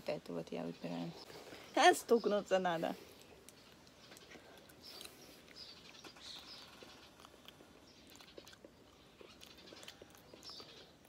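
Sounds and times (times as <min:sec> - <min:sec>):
faint bird chirps: 0:00.4 - 0:11.0
chewing jelly beans: 0:03.2 - 0:11.0.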